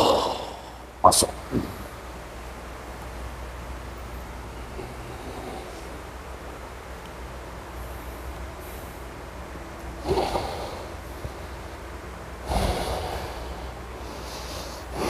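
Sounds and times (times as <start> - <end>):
steady low hum: 0.0 - 15.0
man snorting exhalations: 10.0 - 11.4, 12.4 - 15.0.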